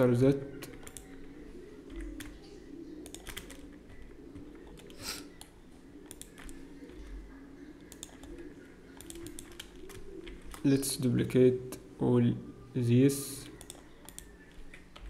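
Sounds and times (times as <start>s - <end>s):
keyboard and mouse clicks: 0.6s - 1.2s, 3.0s - 7.1s, 7.8s - 10.7s, 13.4s - 15.0s.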